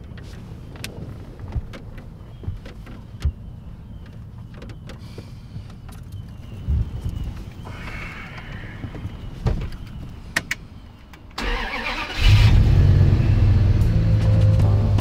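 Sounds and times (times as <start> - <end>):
soft knocks and rustles: 0.0 - 7.6, 8.5 - 10.3
low rumble inside vehicle: 12.3 - 15.0.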